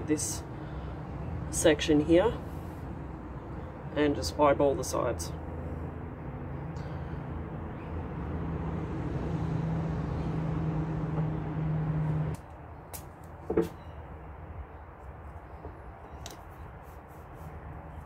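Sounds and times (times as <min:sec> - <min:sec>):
low motor hum: 0:05.4 - 0:12.5.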